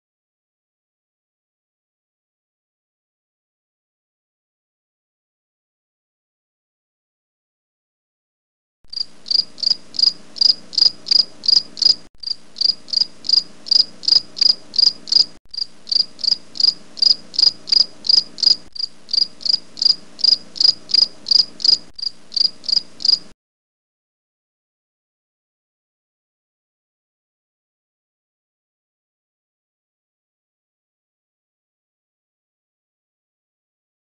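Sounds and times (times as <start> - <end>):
insect chirping: 8.9 - 23.3.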